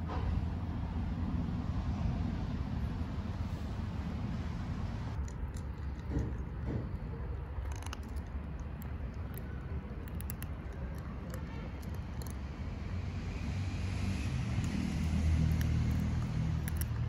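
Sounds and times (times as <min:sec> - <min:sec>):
vehicle engine rumble: 0:00.0 - 0:17.0
cats crunching dry kibble: 0:05.2 - 0:17.0.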